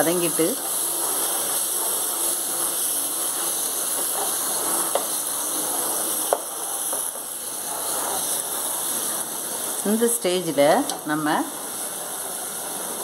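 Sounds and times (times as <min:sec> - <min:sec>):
spatula stirring: 0:00.0 - 0:10.0
vegetables sizzling in oil: 0:00.0 - 0:13.0
spatula tapping pot: 0:06.3 - 0:07.1.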